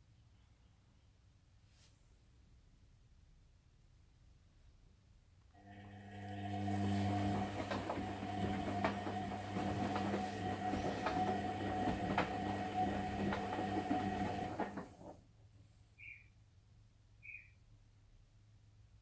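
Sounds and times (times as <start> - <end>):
washing machine motor humming: 5.6 - 15.2
wet laundry knocking in drum: 6.9 - 15.0.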